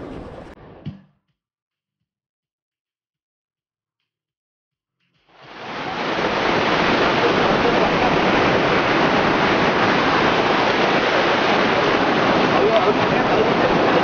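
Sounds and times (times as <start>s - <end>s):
surf washing on beach: 5.3s - 14.0s.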